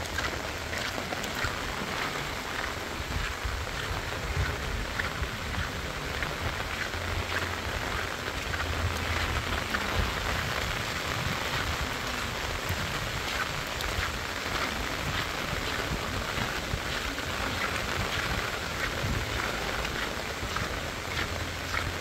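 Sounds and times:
rain on a wet paved road: 0:00.0 - 0:22.0.

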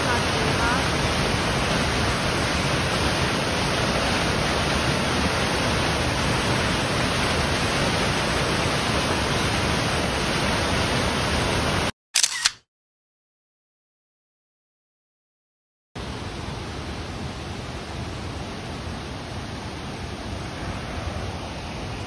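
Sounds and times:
waterfall rushing: 0:00.0 - 0:11.9
camera shutter click: 0:12.2 - 0:12.6.

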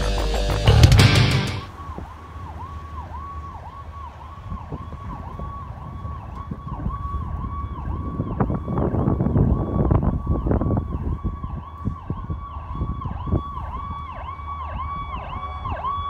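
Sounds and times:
low rumble: 0:00.0 - 0:01.8
electronic siren warbling: 0:00.0 - 0:16.0.

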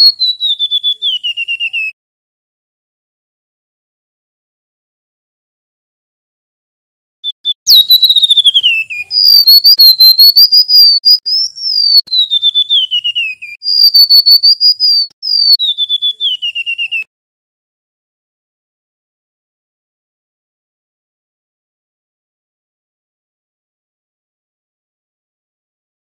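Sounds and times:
bird singing whistled phrases: 0:00.0 - 0:02.0, 0:07.2 - 0:17.1.

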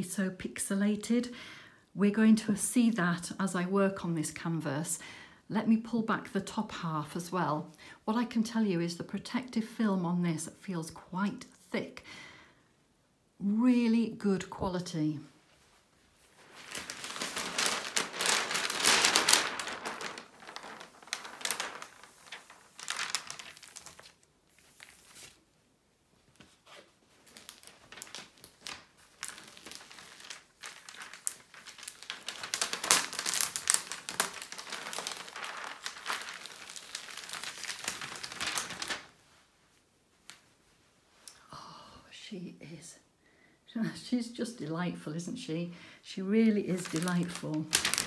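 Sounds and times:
plastic film peeling and crinkling: 0:16.2 - 0:25.5, 0:26.3 - 0:39.2, 0:46.6 - 0:48.0.

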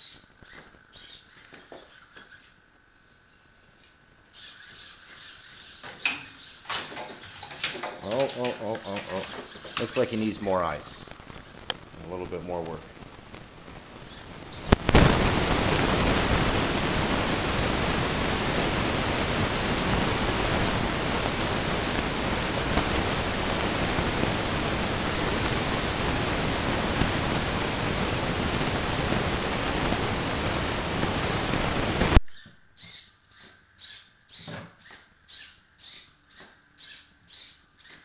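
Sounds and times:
static hiss: 0:00.0 - 0:32.4
pop: 0:13.0 - 0:18.0.

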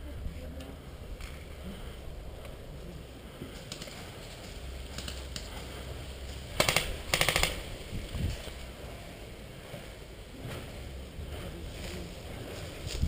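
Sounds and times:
airsoft rifle full-auto bursts: 0:06.6 - 0:07.7.

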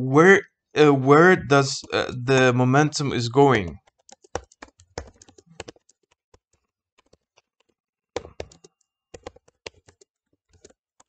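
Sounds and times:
typing on computer keyboard: 0:03.8 - 0:11.0.

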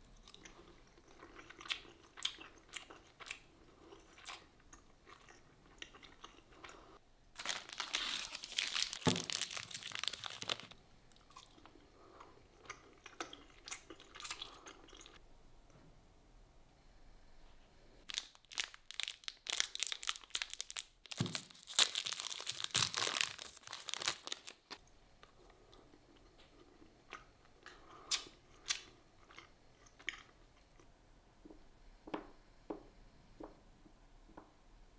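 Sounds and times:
crunching chocolate bar: 0:07.4 - 0:11.7, 0:18.1 - 0:24.8.

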